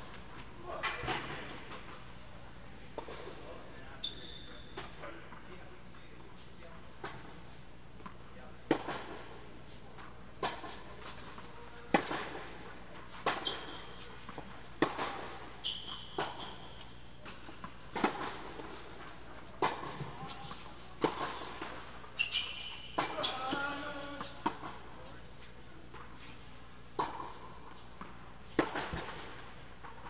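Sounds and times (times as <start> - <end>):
shoes squeaking on court: 3.0 - 5.4, 13.0 - 26.5
racquet hitting tennis ball: 8.7 - 9.2, 11.9 - 24.8, 27.0 - 29.5.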